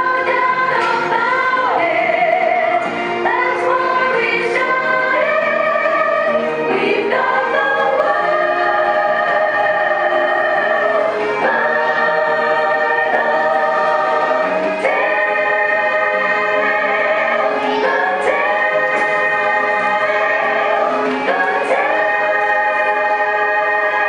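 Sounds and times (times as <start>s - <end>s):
choir singing held chords: 0.0s - 24.0s.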